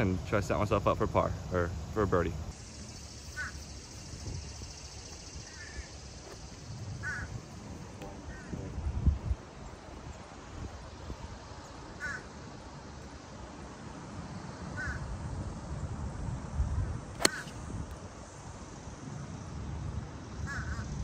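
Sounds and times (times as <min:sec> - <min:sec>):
crow cawing: 0:03.3 - 0:03.6, 0:05.5 - 0:05.9, 0:07.0 - 0:07.3, 0:08.2 - 0:08.6, 0:12.0 - 0:12.3, 0:14.8 - 0:15.0, 0:20.5 - 0:20.9
golf club striking ball: 0:17.2 - 0:17.7.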